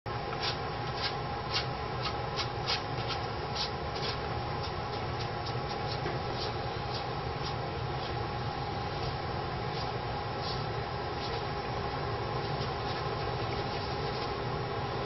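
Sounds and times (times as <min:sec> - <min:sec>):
brush scratching on canvas: 0:09.0 - 0:11.5, 0:12.4 - 0:14.4.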